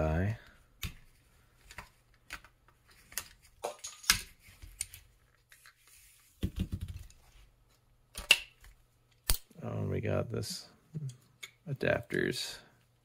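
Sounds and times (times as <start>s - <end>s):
plastic parts rattling clatter: 3.0s - 4.4s.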